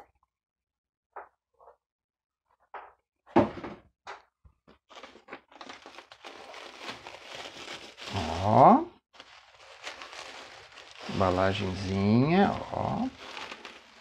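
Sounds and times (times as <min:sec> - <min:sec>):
bubble wrap crinkling: 0:04.9 - 0:14.0.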